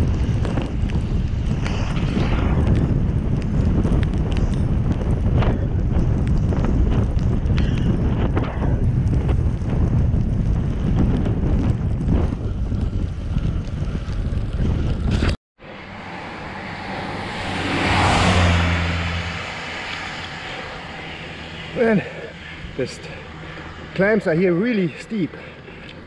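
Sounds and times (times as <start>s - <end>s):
low engine hum: 0.0s - 24.4s
wind buffeting microphone: 0.0s - 26.0s
car tyres hissing on wet road: 16.1s - 22.5s.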